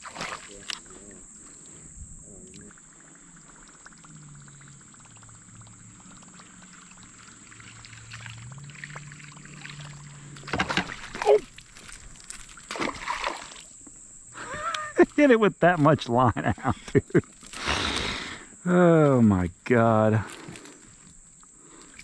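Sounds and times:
fish splashing at surface: 3.5 - 13.7.

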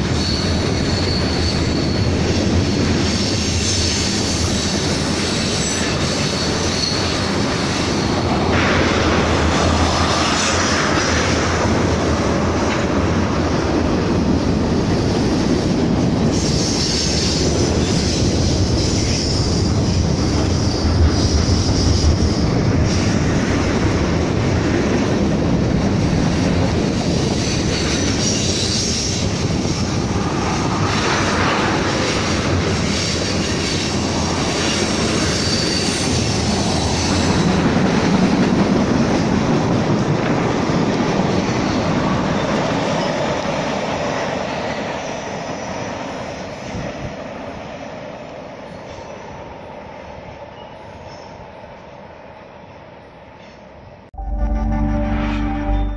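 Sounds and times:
high wheel squeal: 0.0 - 8.2, 16.3 - 23.2, 27.3 - 37.6
train cars rumbling on rails: 0.0 - 51.7.

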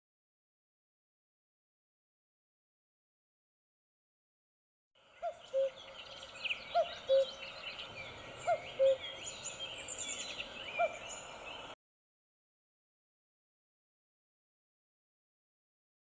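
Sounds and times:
small birds chirping and trilling: 5.0 - 11.8.

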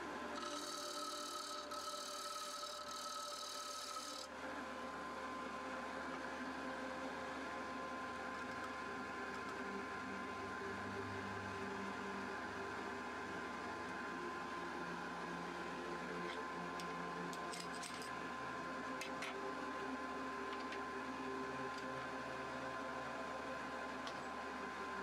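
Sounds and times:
steady machine hum: 0.0 - 25.0
lathe tool scraping wood: 0.4 - 4.2.

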